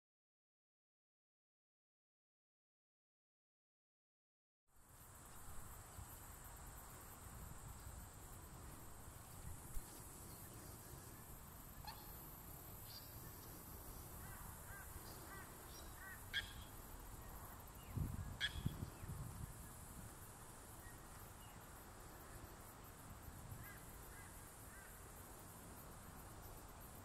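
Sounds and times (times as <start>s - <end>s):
high insect buzz: 4.8s - 27.0s
small birds chirping: 9.1s - 19.2s.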